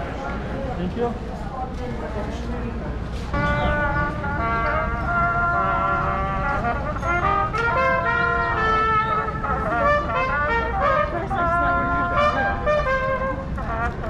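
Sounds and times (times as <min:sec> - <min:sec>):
low street noise: 0:00.0 - 0:14.0
brass instrument playing melody: 0:03.3 - 0:14.0.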